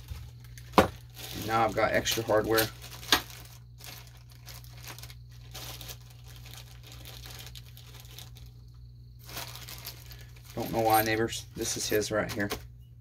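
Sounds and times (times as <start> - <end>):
plastic bags crinkling: 0.0 - 12.6.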